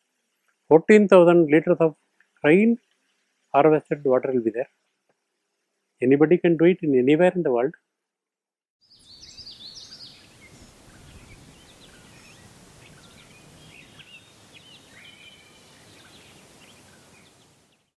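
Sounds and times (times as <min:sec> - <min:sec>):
steady background hiss: 0:00.0 - 0:07.7, 0:09.0 - 0:17.9
birds chirping and calling: 0:08.9 - 0:17.4.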